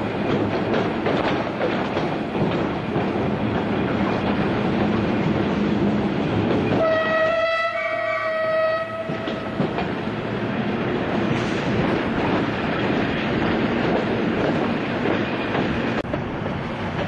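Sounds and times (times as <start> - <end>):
train rumbling on rails: 0.0 - 17.0
train horn: 6.8 - 9.5.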